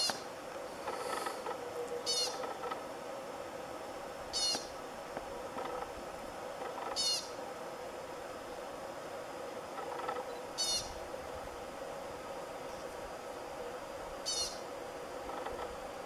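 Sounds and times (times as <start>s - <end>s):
pika squeaks: 2.1s - 2.6s, 4.4s - 4.7s, 7.0s - 7.3s, 10.6s - 10.9s, 14.3s - 14.6s.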